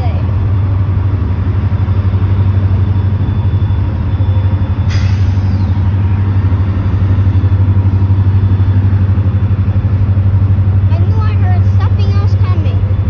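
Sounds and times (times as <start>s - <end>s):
diesel locomotive engines rumbling: 0.0s - 13.0s
air brake hiss: 4.9s - 5.8s.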